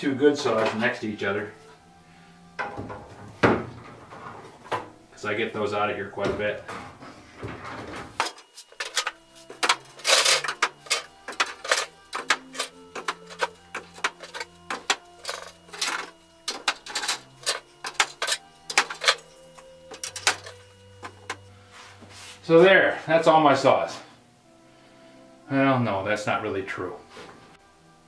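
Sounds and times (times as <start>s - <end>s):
hand saws clattering: 8.2s - 21.4s.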